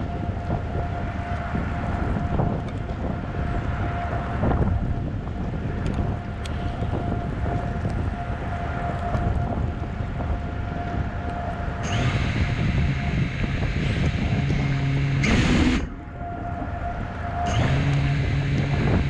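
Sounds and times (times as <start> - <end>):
wind buffeting microphone: 0.0 - 19.0
steady high tone: 6.6 - 19.0.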